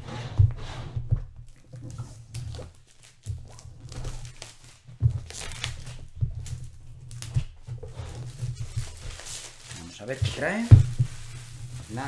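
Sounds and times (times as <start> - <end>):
plastic shrink wrap tearing: 1.8 - 12.0
box knocking on table: 10.7 - 11.2.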